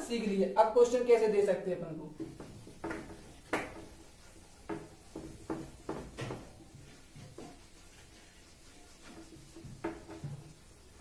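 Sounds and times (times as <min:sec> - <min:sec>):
eraser rubbing on whiteboard: 0:02.2 - 0:11.0.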